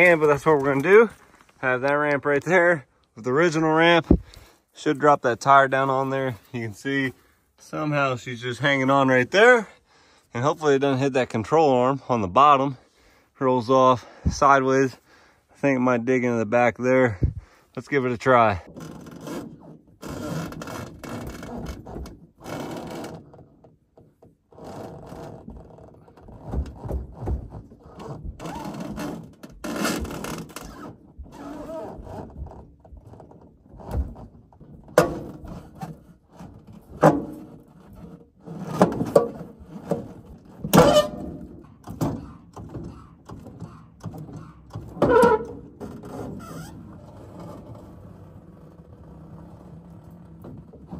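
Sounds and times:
sharp loud thunks: 4.0 - 4.3
metal clunks and scraping: 4.0 - 4.6, 32.2 - 50.9.

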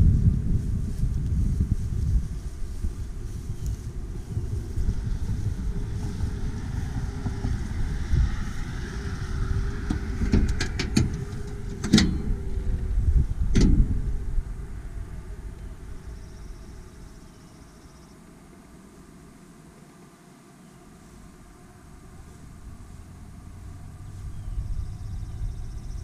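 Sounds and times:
wind on microphone: 0.0 - 17.7, 21.2 - 26.0
hood clunks: 6.0 - 12.7, 13.4 - 14.0
metallic clicks of latch: 10.3 - 12.3.

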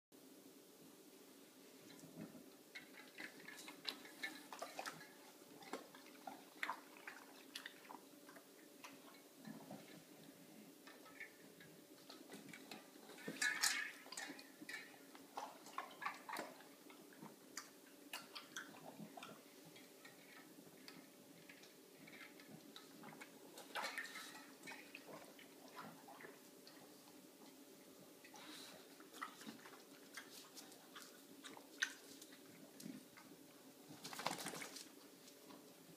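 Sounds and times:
dog lapping water: 2.8 - 9.1, 12.1 - 17.0.

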